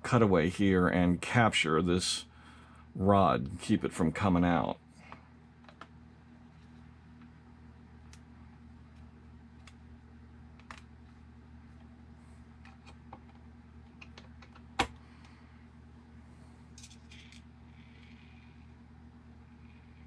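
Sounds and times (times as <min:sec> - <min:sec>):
small parts in metal tray: 0:16.8 - 0:18.4.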